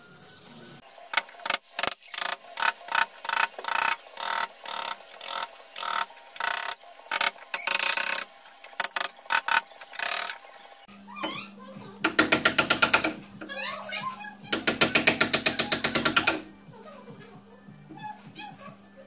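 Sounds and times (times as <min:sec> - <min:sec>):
hammer striking wood chisel: 0:12.0 - 0:13.2, 0:14.5 - 0:16.5.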